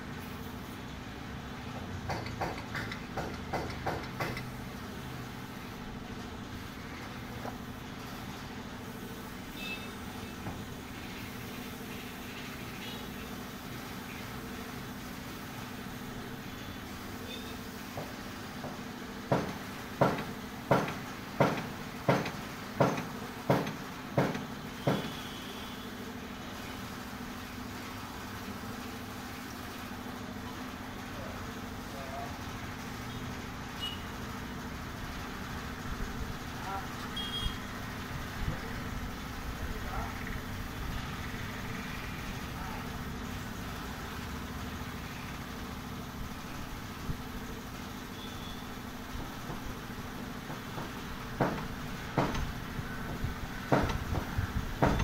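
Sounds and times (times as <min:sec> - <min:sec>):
sharp ringing knocks: 0:19.3 - 0:25.2, 0:50.5 - 0:55.0.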